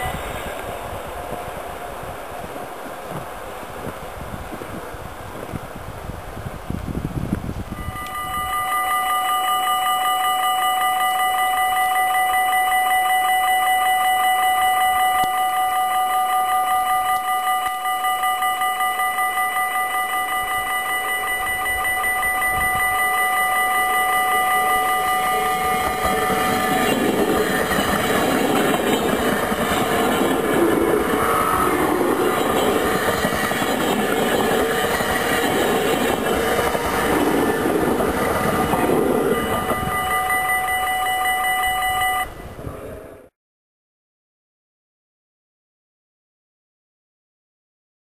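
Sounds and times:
level crossing bell ringing: 7.8s - 42.4s
train wheels rumbling on rails: 13.8s - 43.0s.

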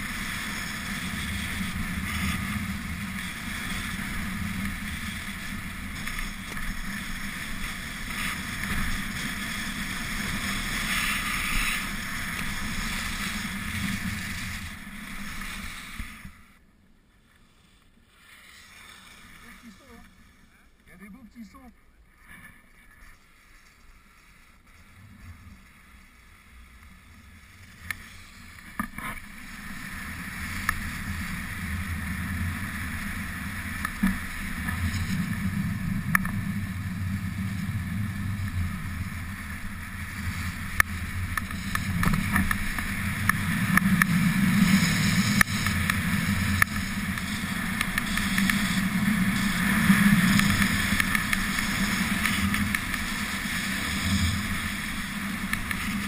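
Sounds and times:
skis sliding on snow: 0.0s - 56.0s.

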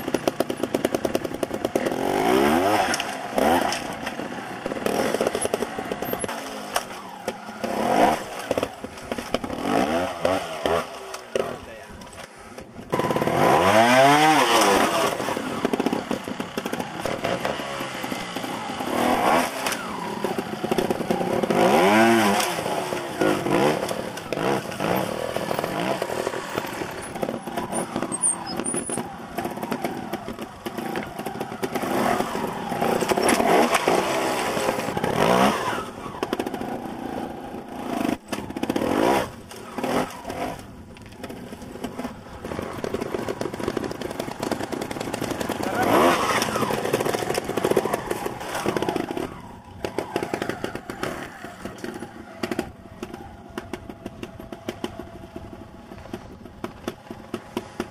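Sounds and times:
motorcycle engine throttle bursts: 12.4s - 57.9s.

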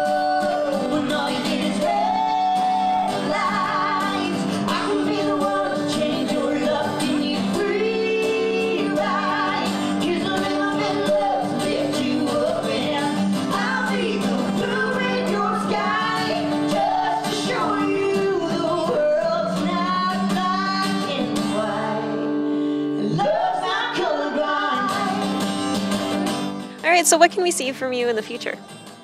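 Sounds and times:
woman singing: 0.0s - 22.4s, 23.0s - 25.4s, 26.8s - 28.6s
strummed acoustic guitar: 0.0s - 29.0s
man singing: 23.0s - 23.4s.

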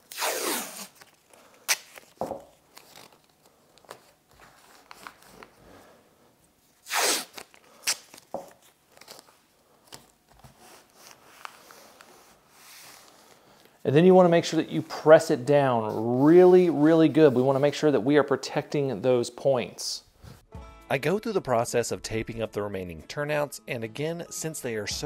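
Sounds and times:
tape tearing clicks: 0.0s - 3.3s
tape crinkling: 0.0s - 5.6s, 6.6s - 12.2s.

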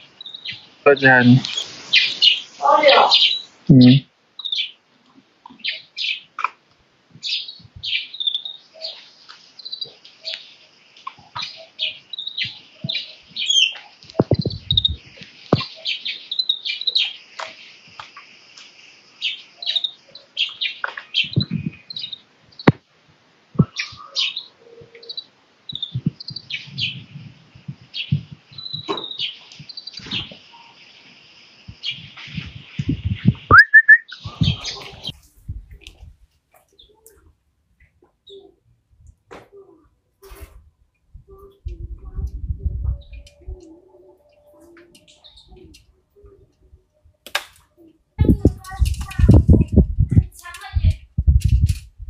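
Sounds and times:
finch chirping and twittering: 0.2s - 4.8s, 7.2s - 17.2s, 19.2s - 22.7s, 23.6s - 30.9s, 31.7s - 35.2s
dull low thumps: 41.2s - 43.2s, 48.2s - 52.0s.

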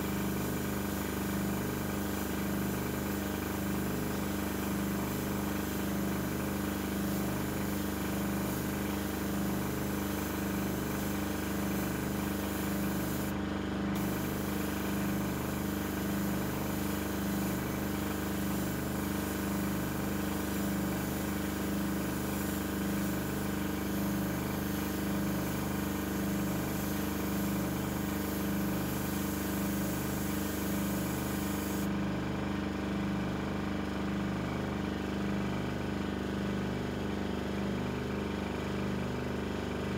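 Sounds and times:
airbrush spraying hiss: 4.1s - 13.3s, 14.0s - 31.9s
compressor humming: 6.6s - 19.4s, 20.2s - 31.9s.

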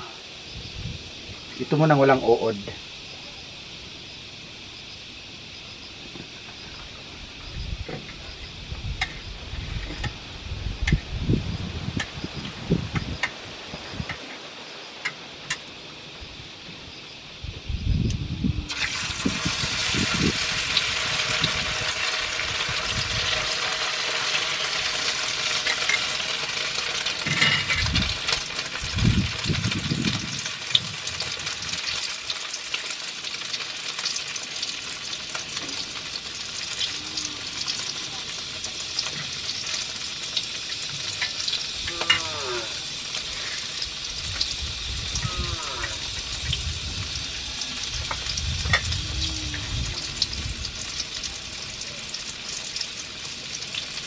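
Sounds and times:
eggplant sizzling in hot oil: 18.2s - 54.0s.

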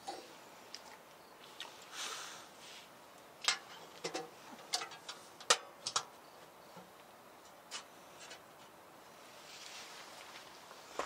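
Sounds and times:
brief hiss: 1.9s - 2.9s.

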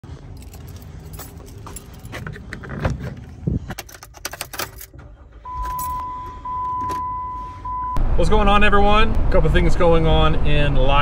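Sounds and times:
keys jangling: 0.2s - 5.0s.

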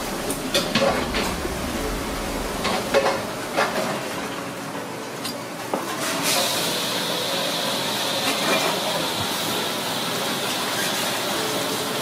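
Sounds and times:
hissing kitchen background noise: 5.9s - 12.0s.

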